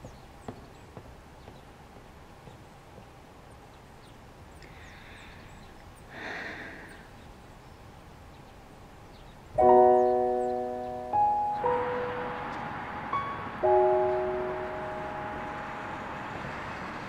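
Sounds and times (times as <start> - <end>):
background hiss: 0.0 - 17.0
piano chord ringing: 9.6 - 17.0.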